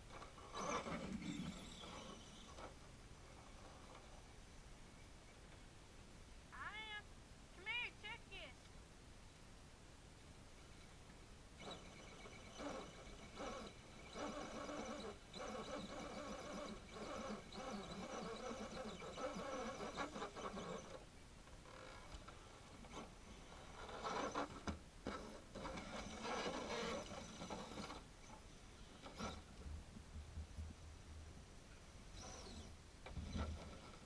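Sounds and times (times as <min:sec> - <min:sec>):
electric motor and gears whining: 0:00.1 - 0:02.7, 0:11.6 - 0:21.0, 0:21.8 - 0:29.5, 0:32.1 - 0:34.0.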